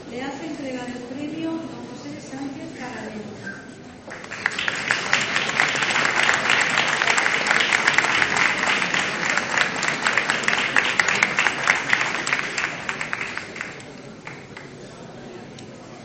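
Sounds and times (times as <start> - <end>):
audience applauding: 4.1 - 14.8.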